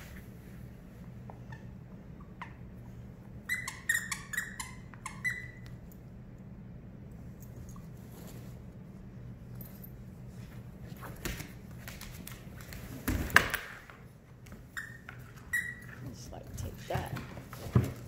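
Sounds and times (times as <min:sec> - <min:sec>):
low steady hum: 0:00.0 - 0:18.0
dogs scuffling: 0:09.5 - 0:18.0.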